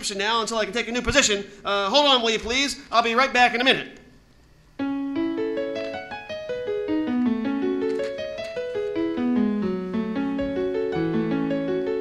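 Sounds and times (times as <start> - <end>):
solo piano melody on keyboard: 4.8 - 12.0.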